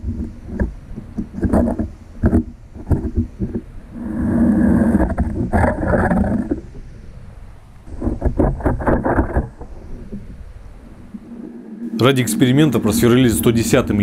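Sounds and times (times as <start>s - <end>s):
auger grinding rumble: 0.0s - 6.7s.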